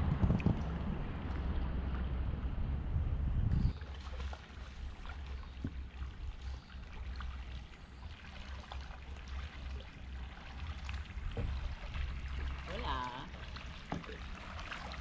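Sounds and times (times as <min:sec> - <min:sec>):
low steady rumble: 0:00.0 - 0:15.0
paddle splashing in water: 0:03.7 - 0:15.0.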